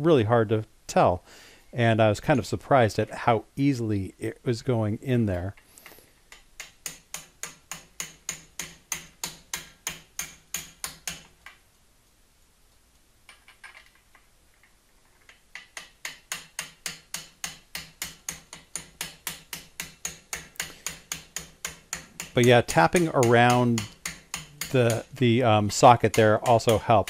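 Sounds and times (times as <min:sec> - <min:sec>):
hammer tapping metal socket: 0:15.6 - 0:27.0.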